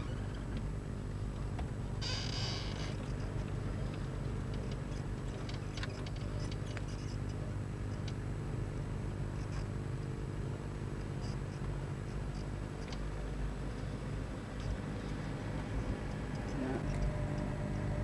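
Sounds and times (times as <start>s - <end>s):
car engine and road drone: 0.0s - 18.0s.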